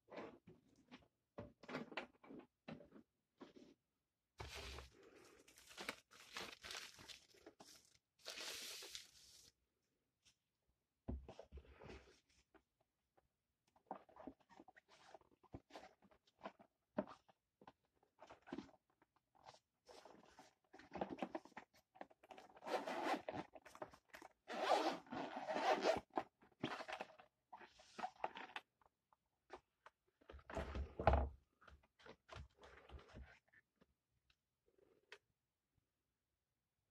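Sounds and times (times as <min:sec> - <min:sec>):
zipper unzipping on a hard case: 0:22.6 - 0:23.4, 0:24.5 - 0:27.1.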